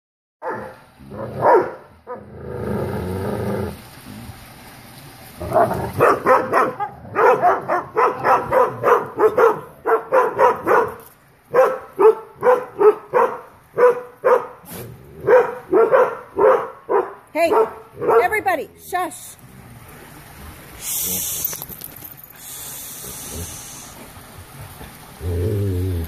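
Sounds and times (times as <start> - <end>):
dogs barking: 0.4 - 2.3, 5.5 - 18.5.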